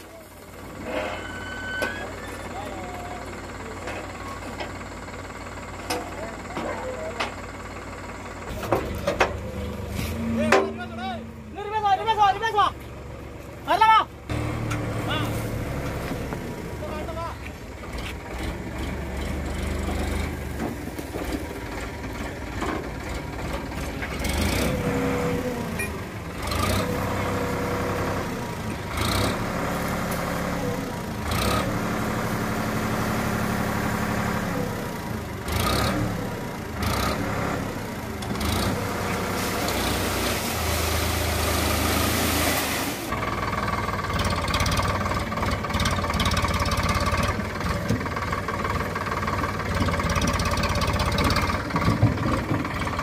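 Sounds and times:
tractor diesel engine running: 0.0 - 53.0
soil and rocks dumping: 14.3 - 18.3, 19.6 - 34.4, 38.2 - 43.5, 46.8 - 53.0.

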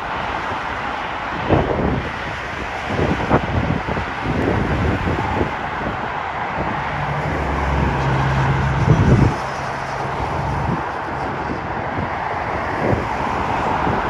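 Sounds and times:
jet airliner engines taxiing: 0.0 - 14.0
road traffic rumble: 0.0 - 14.0
vehicle engine low hum: 6.6 - 11.7.

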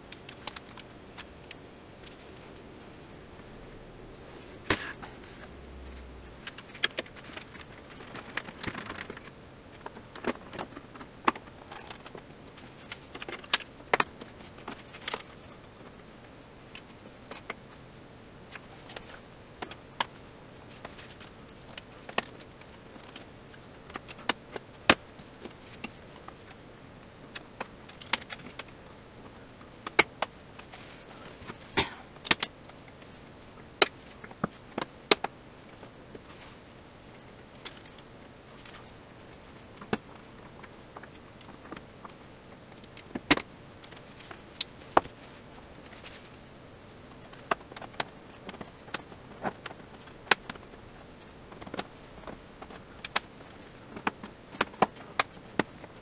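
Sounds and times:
clicks and knocks of tv parts: 4.6 - 15.4, 29.8 - 33.0, 39.7 - 46.3, 47.1 - 56.0.

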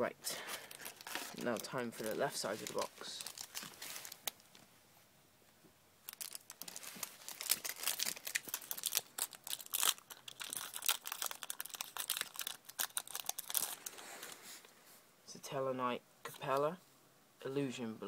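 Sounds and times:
foil wrapper crinkling and tearing: 0.4 - 4.6, 6.0 - 14.4.

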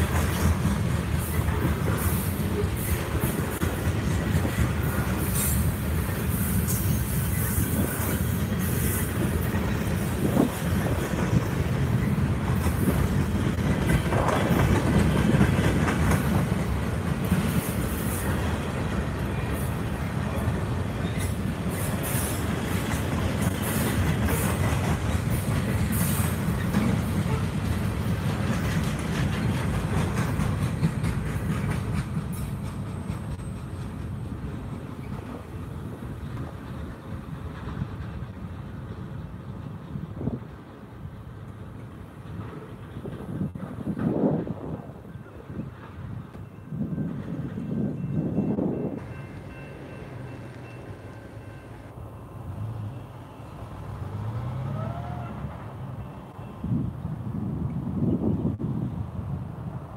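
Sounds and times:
freight train rumbling: 0.0 - 59.9
train wheels squealing: 4.5 - 10.5, 17.5 - 24.6, 30.2 - 35.4.

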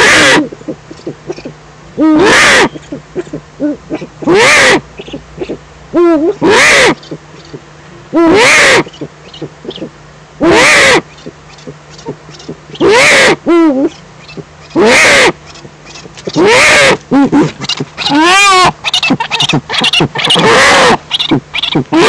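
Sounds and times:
owl giving hoarse calls: 0.0 - 22.0.

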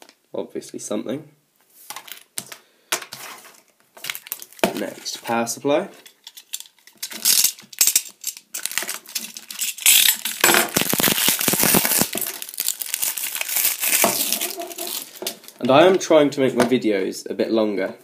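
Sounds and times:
plastic wrapping crinkling: 3.2 - 5.2, 6.0 - 16.0.

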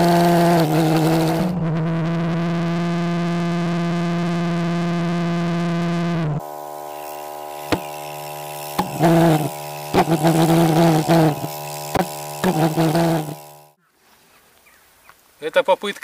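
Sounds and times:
pulsejet coughs and pops: 0.0 - 2.2, 7.6 - 13.5
spark igniter electric buzz: 0.0 - 13.8.

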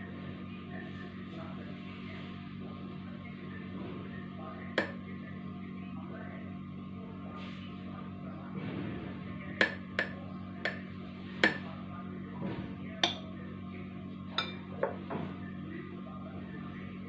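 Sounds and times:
spoon clinking against glass: 13.0 - 13.2, 14.4 - 14.6.

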